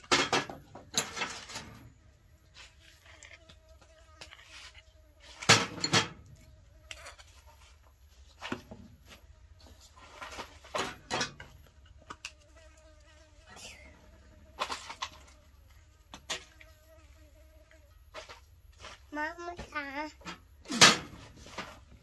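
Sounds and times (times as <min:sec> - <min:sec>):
fly buzzing: 0:01.0 - 0:07.8, 0:10.4 - 0:19.8.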